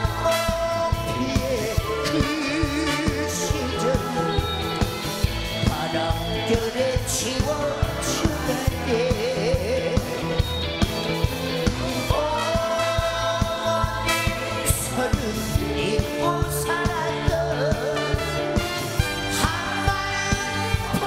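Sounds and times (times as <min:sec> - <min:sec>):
man singing with vibrato: 0:00.0 - 0:10.5, 0:11.9 - 0:21.0
band playing: 0:00.0 - 0:21.0.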